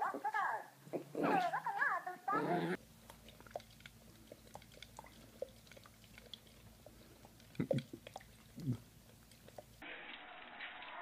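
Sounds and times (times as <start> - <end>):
wet mouth sounds: 3.0 - 9.8.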